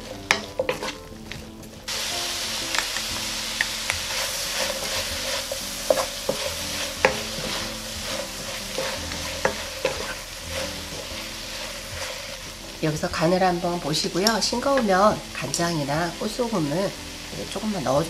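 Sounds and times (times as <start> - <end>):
onions sizzling in oil: 0.0 - 18.0
wooden spatula scraping food: 0.2 - 1.8, 3.6 - 13.0.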